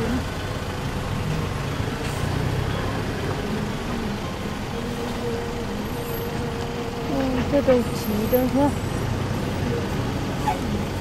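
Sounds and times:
vehicle engine and road noise: 0.0 - 11.0.

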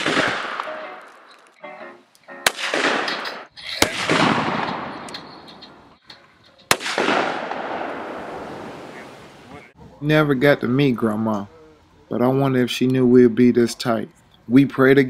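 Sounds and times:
gunshots: 0.0 - 1.4, 2.4 - 5.7, 6.7 - 9.0.

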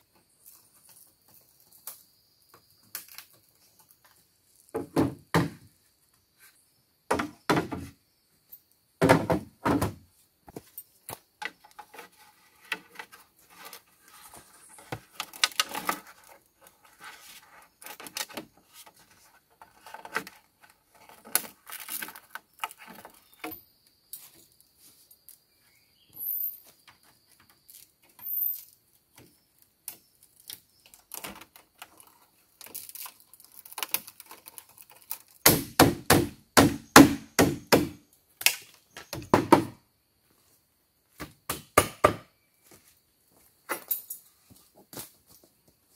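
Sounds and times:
bamboo clicks and scrapes: 0.1 - 4.9, 10.5 - 25.4, 26.7 - 35.8, 38.4 - 39.2
bamboo poles knocking together: 7.1 - 7.9, 9.0 - 10.0, 14.4 - 16.4, 29.9 - 39.8.

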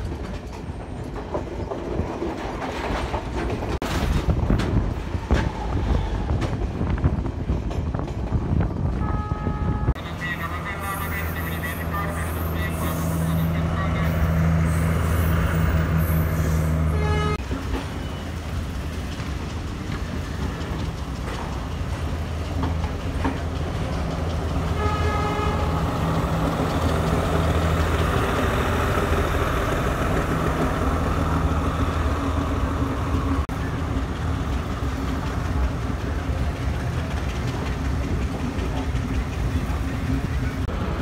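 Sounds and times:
train wheels on rails: 0.0 - 9.1, 10.2 - 41.0
diesel train engine droning: 3.8 - 41.0
train horn: 9.0 - 10.0, 16.9 - 17.4, 24.7 - 25.8.

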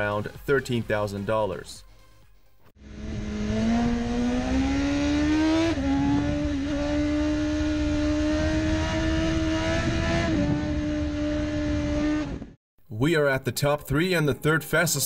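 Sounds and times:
motorcycle engine at high revs: 2.8 - 12.6
wind rush: 5.8 - 7.1, 7.7 - 12.6.

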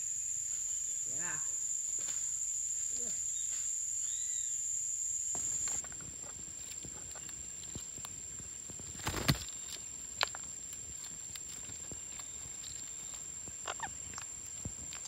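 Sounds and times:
loud crackle of branch: 5.4 - 15.0.

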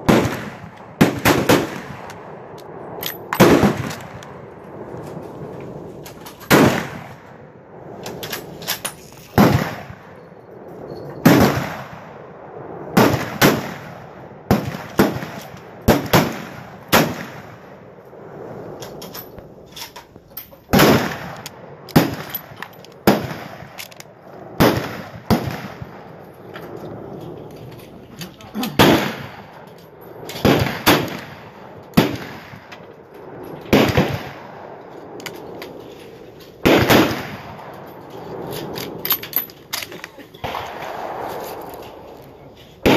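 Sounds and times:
rifle shots: 0.0 - 4.9, 6.3 - 7.3, 9.4 - 10.2, 11.2 - 12.2, 12.9 - 17.8, 20.7 - 26.2, 28.8 - 35.8, 36.6 - 39.3.

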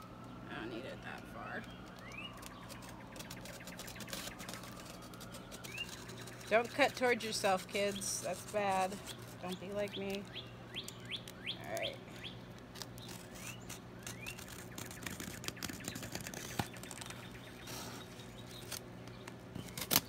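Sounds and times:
small birds chirping: 0.2 - 20.0
box cutter slicing tape: 19.6 - 20.0.

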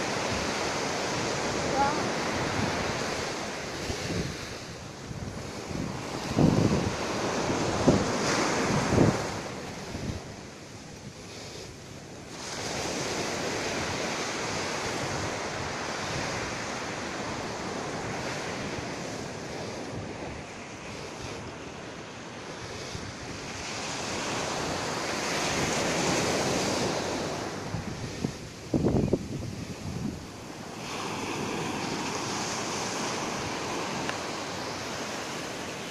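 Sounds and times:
wind buffeting microphone: 0.0 - 11.3, 22.5 - 35.9
surf rushing on beach: 0.0 - 35.9.

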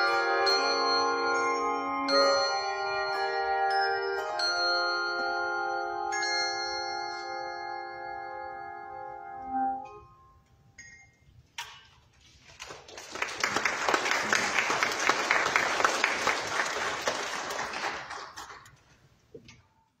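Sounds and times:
audience applauding: 12.4 - 18.8.

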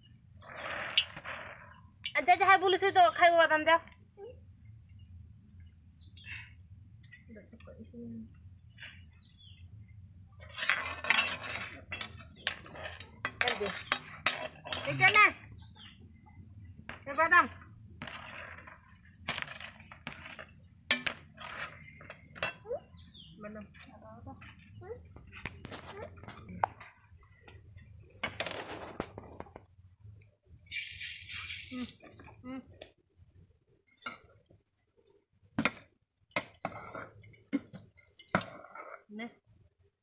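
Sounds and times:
spoon scraping metal pot: 10.4 - 15.5.

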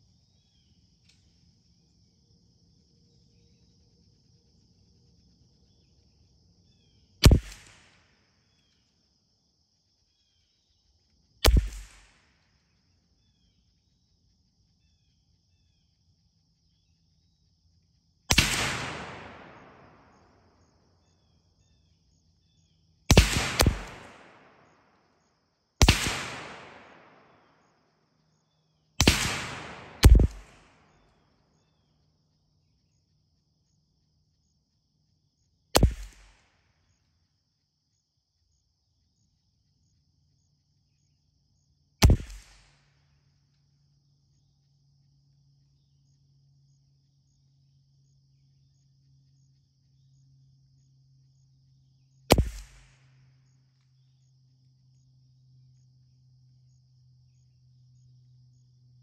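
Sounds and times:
high insect drone: 0.0 - 7.4, 8.1 - 11.4, 12.5 - 18.2, 19.4 - 26.0, 30.8 - 35.7, 36.8 - 42.0, 43.1 - 52.3, 53.1 - 59.0
rifle shots with echo: 7.2 - 8.1, 11.5 - 12.3, 18.3 - 20.5, 23.1 - 25.0, 25.8 - 27.7, 29.0 - 31.0, 35.8 - 36.5, 42.0 - 42.8, 52.3 - 53.1
sharp crack with low thump: 7.2 - 8.1, 11.4 - 12.3, 18.3 - 20.2, 23.1 - 24.7, 25.8 - 27.3, 29.0 - 30.8, 35.8 - 36.5, 42.0 - 42.8, 52.3 - 53.1.

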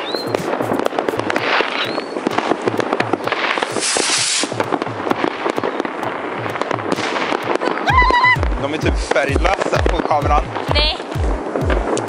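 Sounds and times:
rising firework whistles: 0.0 - 2.5, 3.5 - 4.6
fireworks bangs and crackling: 0.0 - 12.0
rocket launching with hiss: 3.5 - 4.6.

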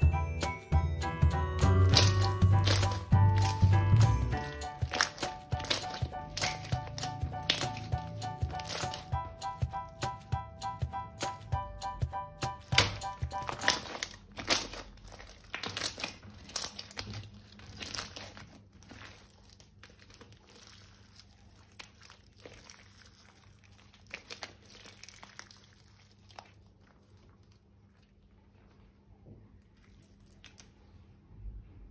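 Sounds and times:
bead slime crackling: 1.6 - 11.6, 12.4 - 27.8.

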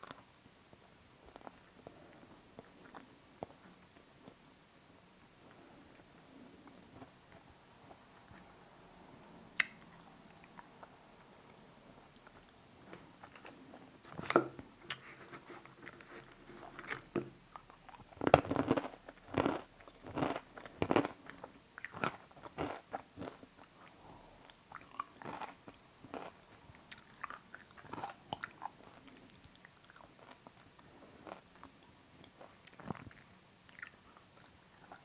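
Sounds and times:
crunchy food chewing: 14.9 - 35.0.

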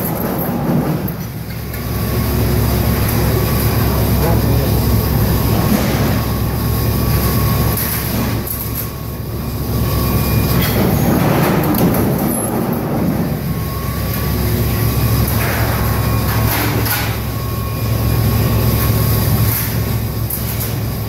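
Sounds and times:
low hum: 0.0 - 20.2
faint high whine: 0.1 - 21.0.

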